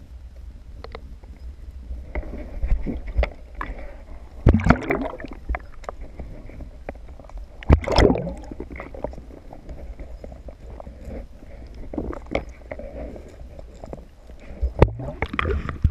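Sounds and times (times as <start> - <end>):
underwater low rumble: 0.0 - 15.9
small clicks and ticks: 0.2 - 3.8, 5.5 - 7.7, 8.7 - 15.9
rush of water: 2.4 - 6.6, 7.6 - 9.9, 14.5 - 15.9.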